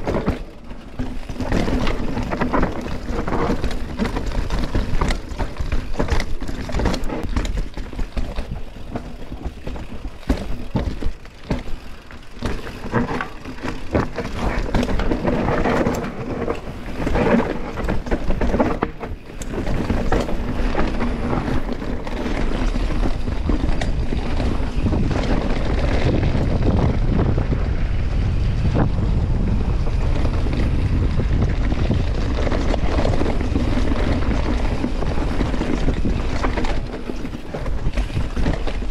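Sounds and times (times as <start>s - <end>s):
bike rattling: 0.0s - 38.9s
bike tyres rumbling over dirt: 0.0s - 38.9s
wind buffeting microphone: 14.4s - 38.9s.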